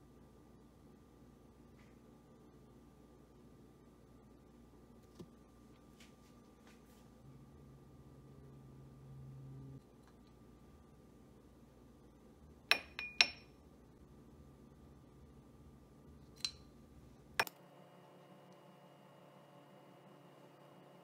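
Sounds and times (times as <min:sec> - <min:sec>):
spoon clinking against glass bowl: 0:12.7 - 0:13.5.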